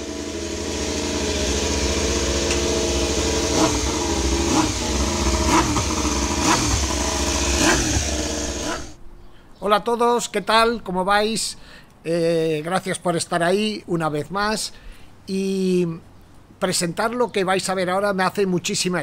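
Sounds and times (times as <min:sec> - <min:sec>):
steady engine drone: 0:00.0 - 0:09.0.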